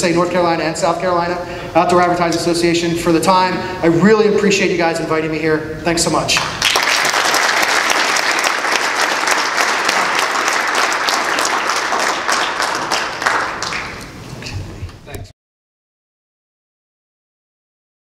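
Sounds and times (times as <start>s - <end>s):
audience applauding: 6.4s - 14.2s.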